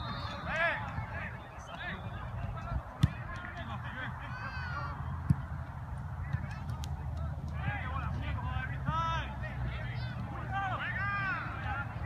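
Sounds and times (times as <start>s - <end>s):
players shouting: 0.0s - 5.6s, 7.5s - 12.0s
soccer ball kicked thud: 2.5s - 3.4s.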